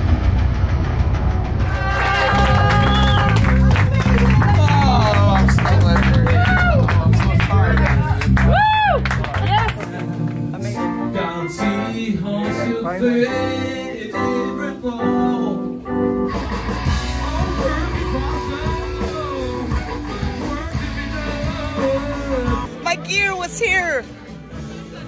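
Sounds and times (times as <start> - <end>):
electric guitar: 0.0 - 22.7
live band music: 1.6 - 25.0
person singing: 10.7 - 22.8.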